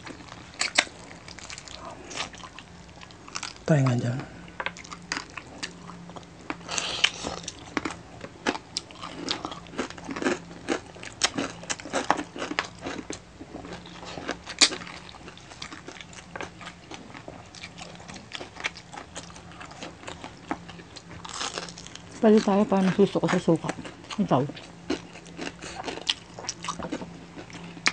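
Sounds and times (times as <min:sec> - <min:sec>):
crunching and chewing: 0:00.0 - 0:27.9.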